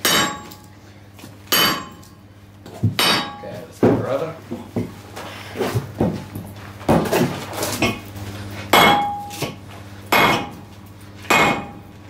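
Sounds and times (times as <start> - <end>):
sledgehammer striking metal tool: 0.0 - 0.7, 1.5 - 2.1, 3.0 - 3.5, 8.7 - 10.6, 11.3 - 11.9.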